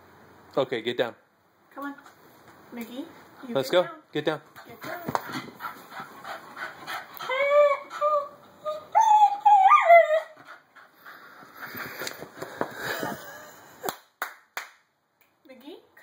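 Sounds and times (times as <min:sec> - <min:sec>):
dog whining: 0:07.2 - 0:10.6.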